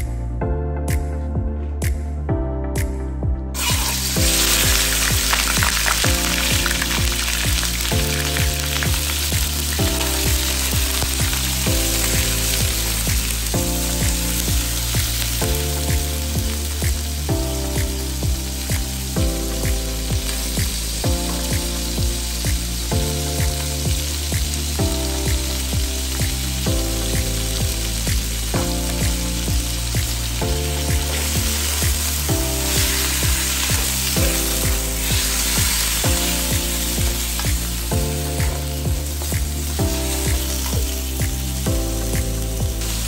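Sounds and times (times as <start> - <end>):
background music with beat: 0.0 - 43.0
chicken sizzling in hot oil: 3.6 - 43.0.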